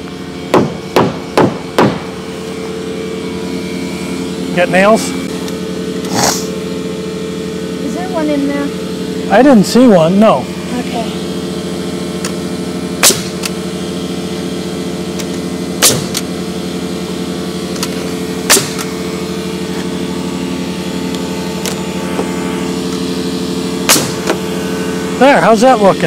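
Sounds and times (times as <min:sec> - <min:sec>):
air compressor drone: 0:00.0 - 0:26.0
nail gun firing: 0:00.5 - 0:02.1, 0:13.0 - 0:13.6, 0:15.8 - 0:16.3, 0:17.8 - 0:18.9, 0:23.8 - 0:24.4.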